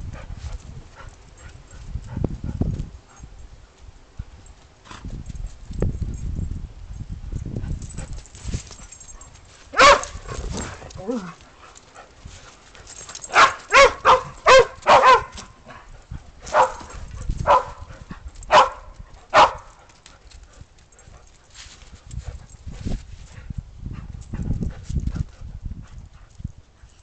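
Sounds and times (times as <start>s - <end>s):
low rustling and thumps: 7.4s - 11.2s
dog barking: 9.8s - 10.2s, 13.3s - 15.4s, 16.5s - 17.8s, 18.5s - 19.7s.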